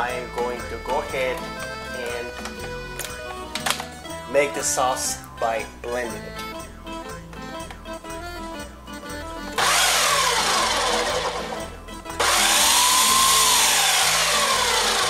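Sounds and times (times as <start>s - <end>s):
blender motor whine: 9.6s - 15.0s.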